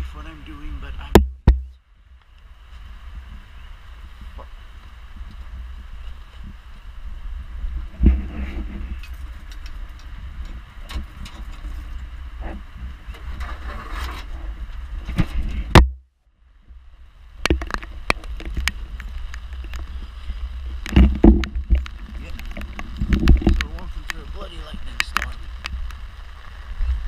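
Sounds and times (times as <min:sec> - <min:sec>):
wind buffeting microphone: 0:02.5 - 0:15.9, 0:16.7 - 0:27.0.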